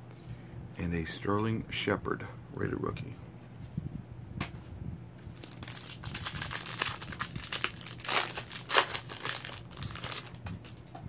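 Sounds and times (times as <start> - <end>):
plastic wrapper tearing and crinkling: 5.3 - 10.8.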